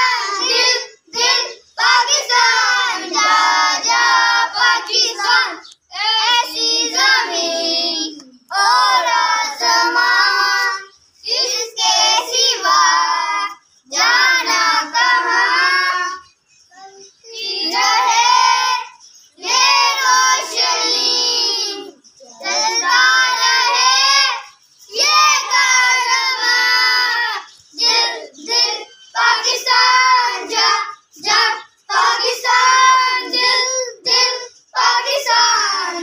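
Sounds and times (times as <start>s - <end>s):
children singing together: 0.0s - 36.0s.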